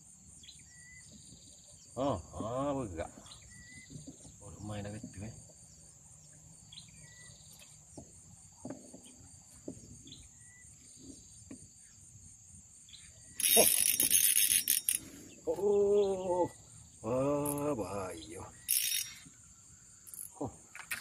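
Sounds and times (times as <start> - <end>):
insect trill: 0.0 - 21.0
spinning reel droning: 13.3 - 15.4, 18.6 - 21.0.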